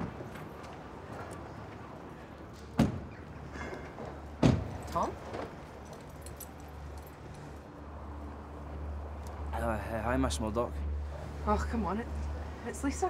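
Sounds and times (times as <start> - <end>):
street traffic hum: 0.0 - 13.0
car door thumping shut: 4.4 - 4.7.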